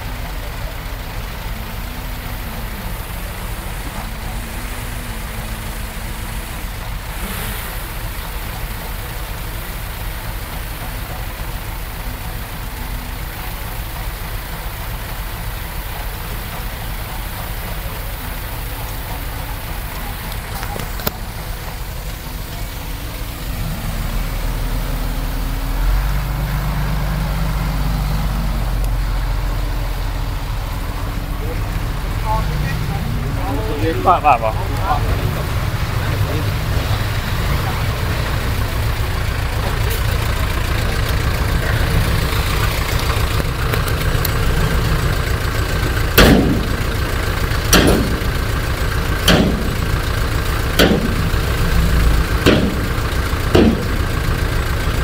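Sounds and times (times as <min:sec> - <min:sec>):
heavy machinery diesel engine: 0:00.0 - 0:55.0
sharp click: 0:49.3 - 0:49.9.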